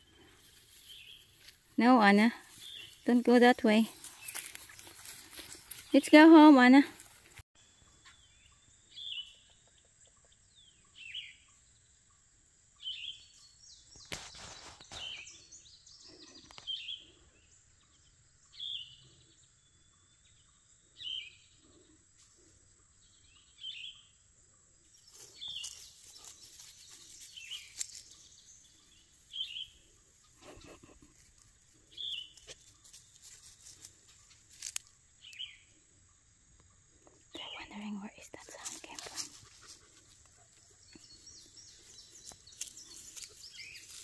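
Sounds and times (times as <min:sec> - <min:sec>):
brief rustle: 0:14.0 - 0:15.2.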